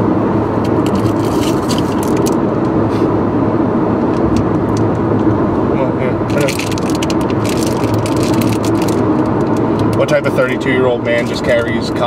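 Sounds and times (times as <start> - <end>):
car cabin road and engine noise: 0.0 - 12.0
plastic packet crinkling: 6.3 - 9.6.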